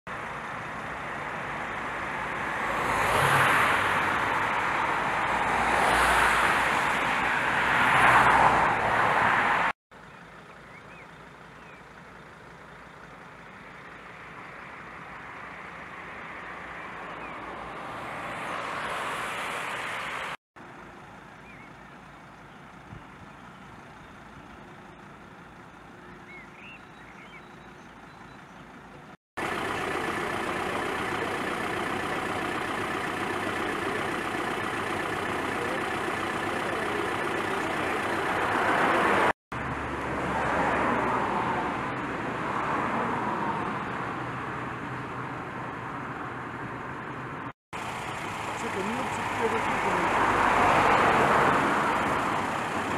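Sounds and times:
traffic noise: 0:00.1 - 0:52.9
car passing: 0:00.6 - 0:09.8, 0:14.4 - 0:20.4, 0:29.4 - 0:52.9.

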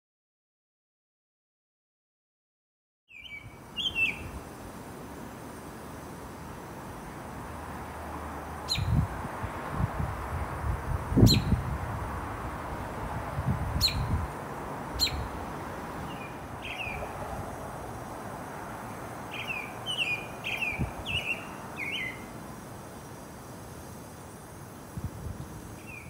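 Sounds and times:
wind buffeting microphone: 0:08.6 - 0:22.6, 0:24.8 - 0:26.0.

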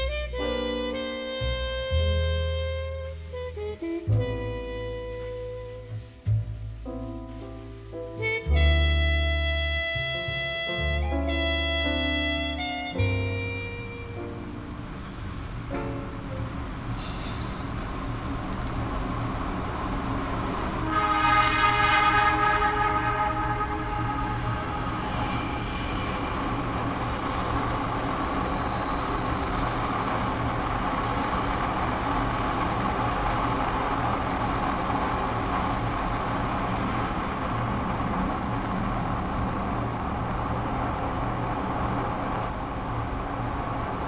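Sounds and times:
subway train rumble: 0:00.0 - 0:44.0
high wheel squeals: 0:19.7 - 0:39.5.

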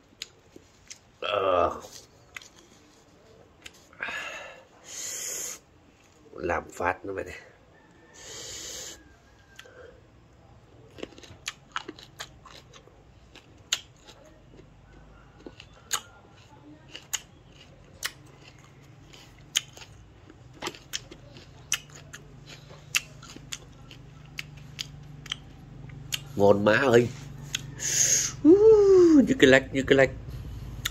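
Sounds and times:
person chewing crunchy fruit: 0:00.0 - 0:04.0, 0:10.6 - 0:28.5, 0:30.4 - 0:30.9.

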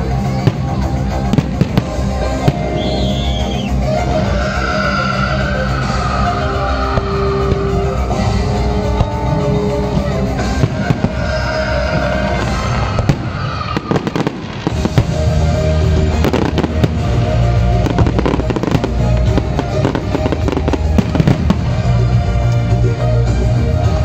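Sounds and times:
fireworks bursting and crackling: 0:00.0 - 0:23.8
music playing: 0:00.0 - 0:24.0.

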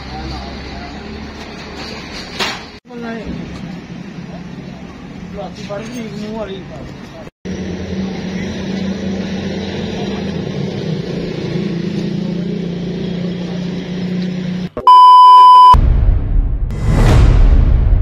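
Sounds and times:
car engine and road noise: 0:00.0 - 0:15.8
loud steady beep: 0:14.9 - 0:15.8.

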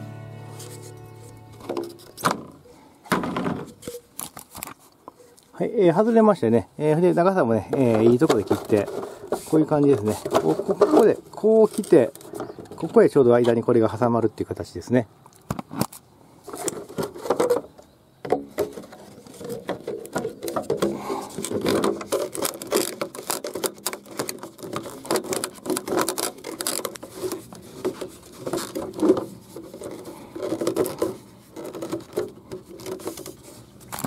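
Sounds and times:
plastic fittings clicking and scraping: 0:01.6 - 0:02.6, 0:07.7 - 0:13.2, 0:15.3 - 0:34.0.

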